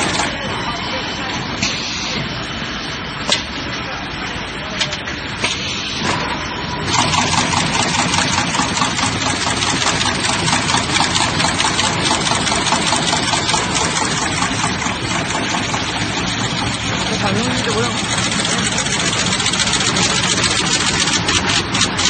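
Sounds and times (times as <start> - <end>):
steady mechanical hum: 0.0 - 22.0
rapid even machine ticking: 6.9 - 22.0.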